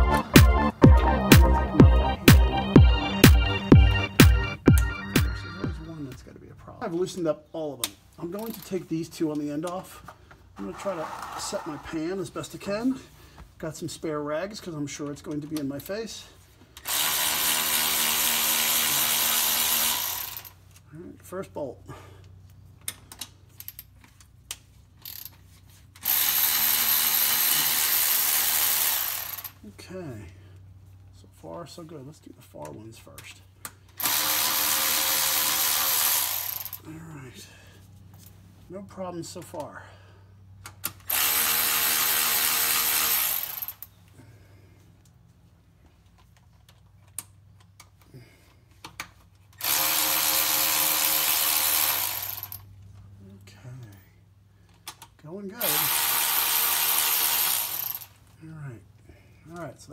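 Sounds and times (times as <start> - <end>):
power driver running: 16.8 - 20.5, 34.0 - 36.8, 41.0 - 43.8, 49.6 - 52.6, 55.6 - 58.1.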